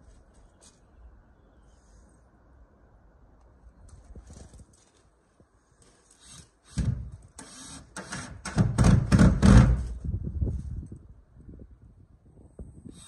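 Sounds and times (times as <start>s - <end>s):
drill driving screws into wood: 6.2s - 9.9s.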